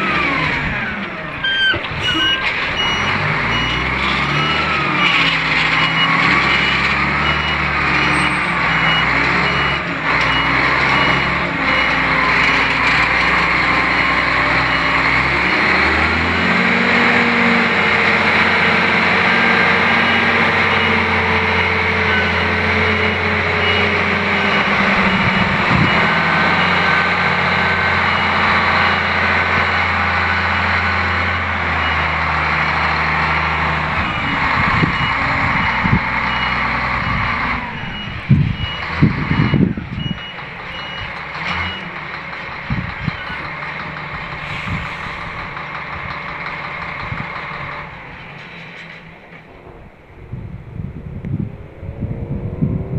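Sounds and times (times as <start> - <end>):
reversing alarm beeping: 0.0 - 16.4, 18.4 - 32.3, 33.4 - 42.0
dump truck diesel engine running: 0.0 - 52.9.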